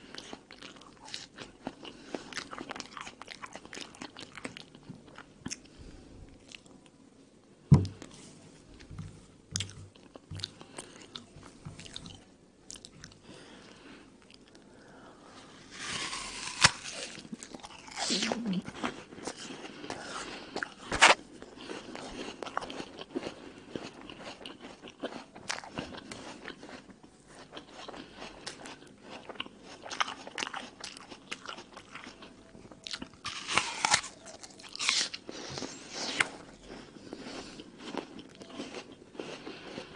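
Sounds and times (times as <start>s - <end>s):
crunchy apple chewing: 15.6s - 39.9s
sharp bites into apple: 15.8s - 17.2s.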